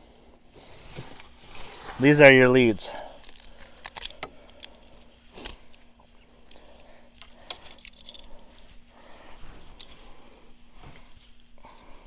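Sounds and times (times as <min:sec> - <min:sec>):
wire clips clicking and rattling: 0:03.2 - 0:08.7.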